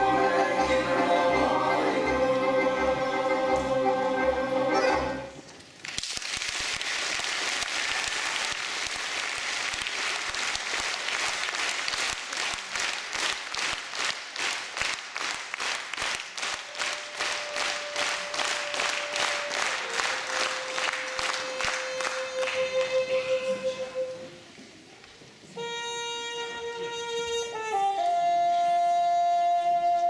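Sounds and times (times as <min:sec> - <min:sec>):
audience applauding: 0:05.8 - 0:23.0
rhythmic clapping in unison: 0:05.8 - 0:23.2.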